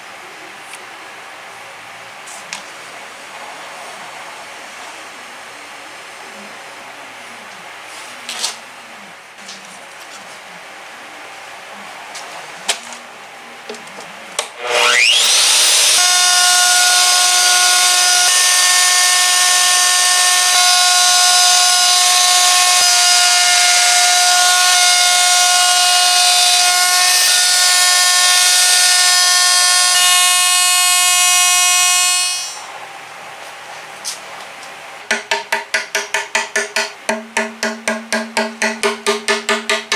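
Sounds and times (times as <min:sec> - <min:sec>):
electric router whining: 0:14.0 - 0:32.7.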